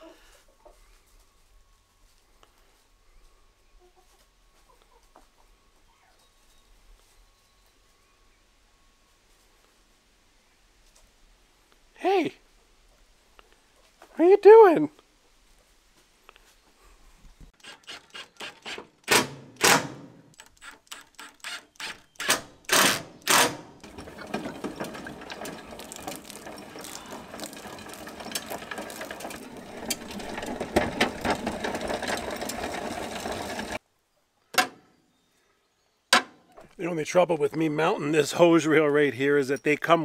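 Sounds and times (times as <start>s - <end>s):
hose reel clicking and rattling: 17.6s - 33.8s.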